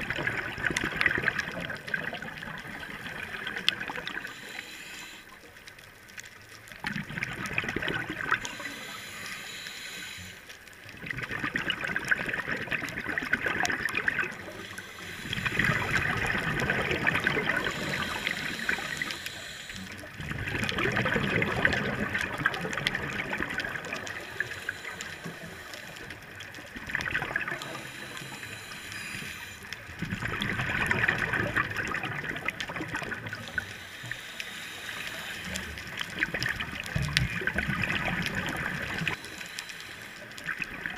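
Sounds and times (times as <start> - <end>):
bubbles gurgling underwater: 0.0 - 4.4, 6.7 - 8.7, 10.9 - 19.2, 20.0 - 24.6, 26.1 - 28.4, 29.9 - 33.7, 35.4 - 39.2, 40.3 - 40.9
diver breathing through regulator: 3.9 - 5.5, 8.4 - 10.6, 13.5 - 20.2, 23.8 - 26.4, 27.4 - 29.8, 32.4 - 36.1, 38.5 - 40.6.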